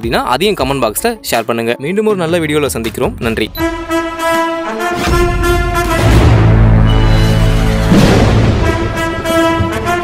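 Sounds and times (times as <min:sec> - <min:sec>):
orchestral music: 0:03.6 - 0:10.0
heavy orchestral hit: 0:04.8 - 0:10.0.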